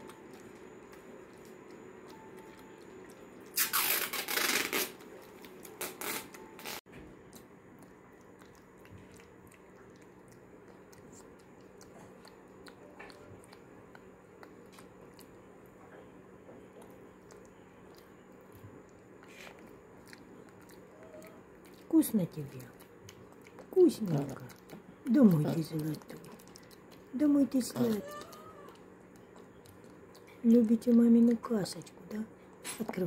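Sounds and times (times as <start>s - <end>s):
monkey eating off a spoon: 7.0s - 31.8s.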